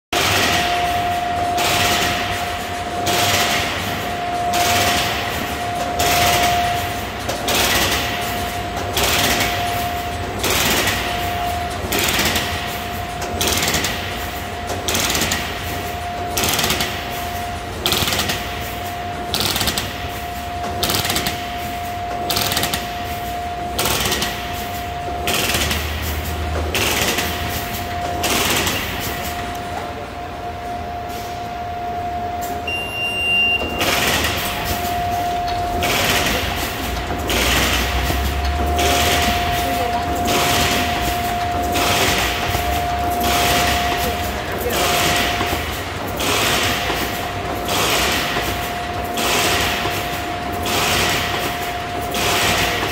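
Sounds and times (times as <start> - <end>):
machine whine: 0.2 - 52.9
short electronic beep: 30.6 - 44.5
machine punching stroke: 35.5 - 52.9.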